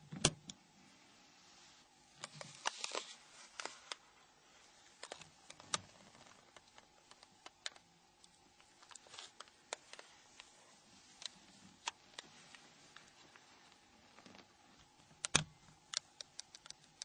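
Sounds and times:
plastic latches clicking open: 15.2s - 17.0s.

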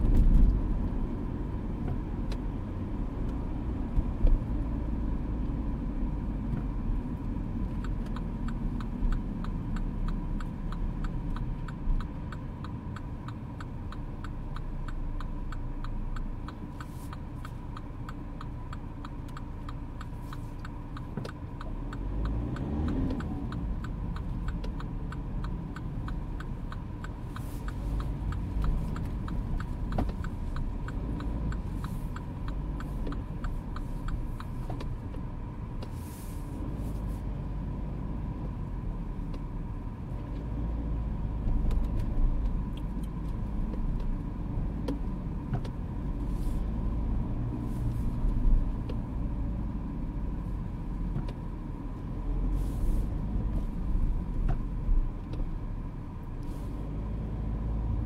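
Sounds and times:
engine and road rumble: 0.0s - 58.0s
turn signal ticking: 0.0s - 58.0s.

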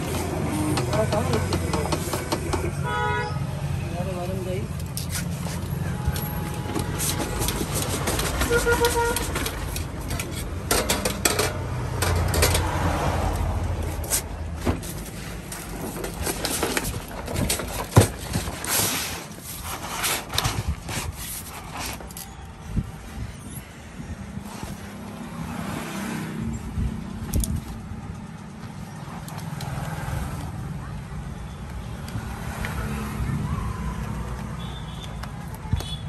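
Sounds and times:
low traffic-like hum: 0.0s - 36.0s
vinyl sheets rustling: 5.0s - 10.2s.

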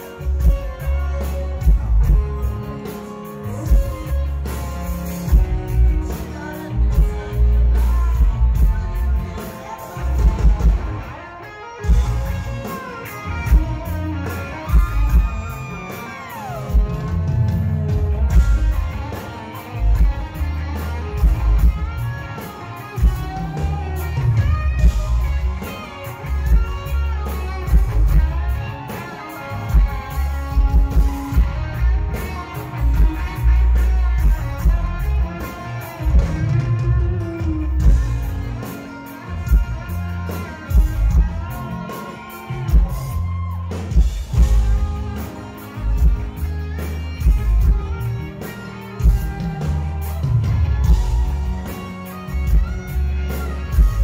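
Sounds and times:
electric guitar strumming: 0.0s - 54.0s
steady drum beat: 11.9s - 54.0s
heavy bass line: 23.0s - 28.9s, 49.0s - 54.0s.

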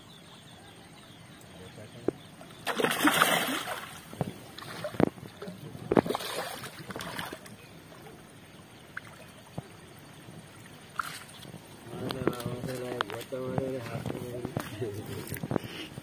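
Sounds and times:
fish thrashing and splashing: 2.6s - 7.6s, 10.8s - 13.2s.

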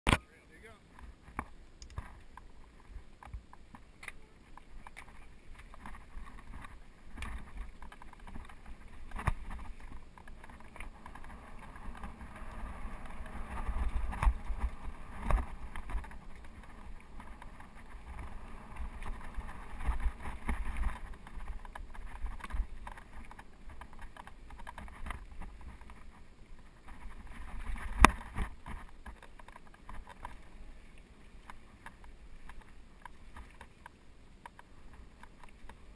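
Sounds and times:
tyres rolling over dirt and stones: 4.6s - 25.9s
bike rattling and knocking: 4.8s - 26.1s.

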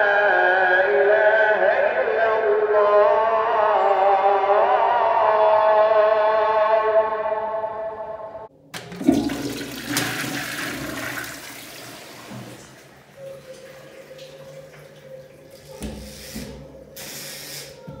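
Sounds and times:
water rushing: 8.9s - 16.4s.

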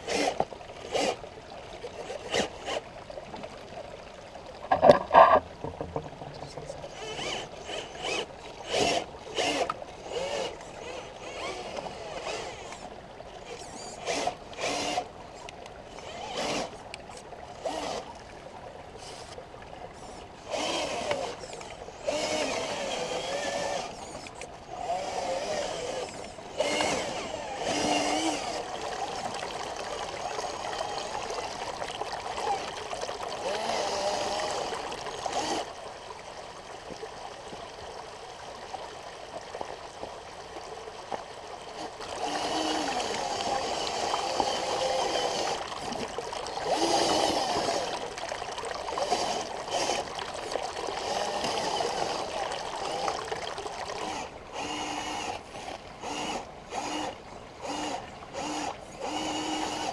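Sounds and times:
running water: 0.0s - 59.9s
rc truck motor whining: 2.0s - 2.8s, 6.9s - 15.1s, 15.9s - 16.8s, 20.0s - 29.4s, 33.4s - 35.8s, 41.8s - 48.1s, 49.0s - 50.1s, 54.0s - 59.9s.

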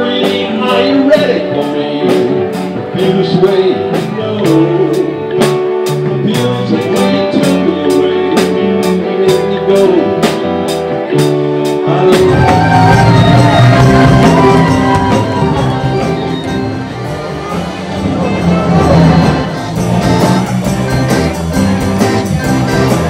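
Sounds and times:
electric guitar: 0.0s - 23.0s
rock band playing: 0.0s - 23.0s
steady drum beat: 12.0s - 23.0s.

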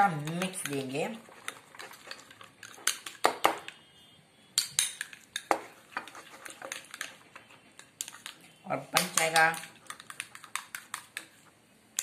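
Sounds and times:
spoon scraping bowl: 0.0s - 3.2s, 4.8s - 11.5s.

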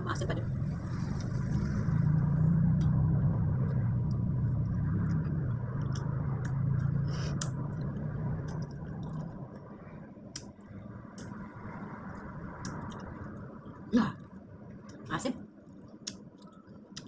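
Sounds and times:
steady low hum: 0.0s - 17.0s
person chewing wetly: 3.6s - 9.7s.

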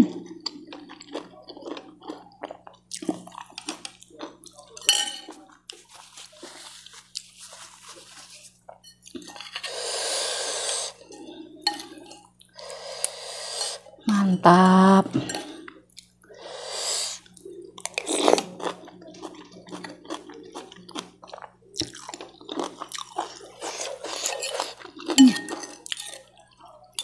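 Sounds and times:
cutlery clinking on a bowl: 4.6s - 5.5s, 8.7s - 9.8s, 10.9s - 12.4s, 15.1s - 15.7s, 23.2s - 27.0s
slurping and chewing noodles: 5.3s - 26.7s
breathy hiss: 9.6s - 11.0s, 12.6s - 13.9s, 16.3s - 17.3s.

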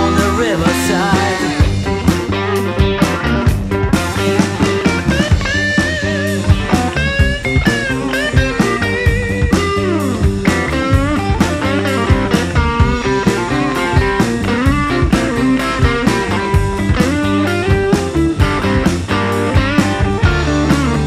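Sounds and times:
bluesy rock guitar over a beat: 0.0s - 21.0s.

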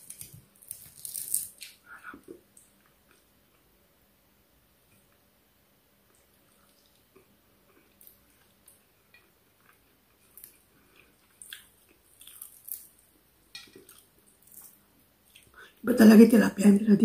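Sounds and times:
person chewing food: 6.0s - 15.6s.

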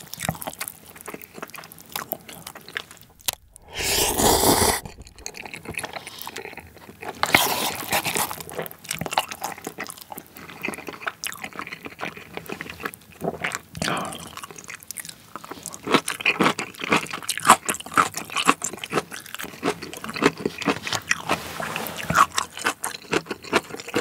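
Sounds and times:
wet chewing mouth sounds: 0.1s - 21.4s, 22.0s - 24.0s
person slurping noodles: 3.2s - 6.4s.

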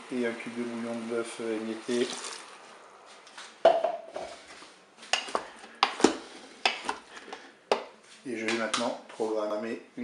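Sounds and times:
broth being poured: 0.5s - 3.1s
wooden spatula knocking on a bowl: 3.6s - 4.0s.

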